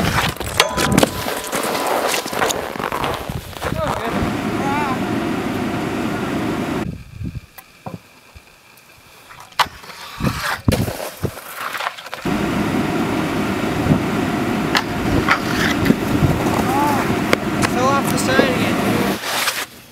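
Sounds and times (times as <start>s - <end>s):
wind buffeting microphone: 2.6s - 7.6s, 12.3s - 19.2s.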